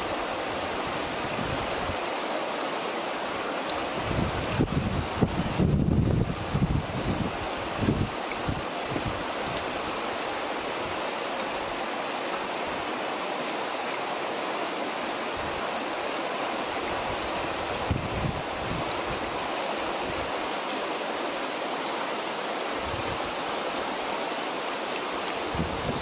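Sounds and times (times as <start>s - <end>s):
stream water over pebbles: 0.0s - 26.0s
wind rumble on microphone: 0.6s - 2.0s, 3.9s - 9.7s, 16.8s - 20.4s, 22.8s - 23.3s, 25.4s - 26.0s.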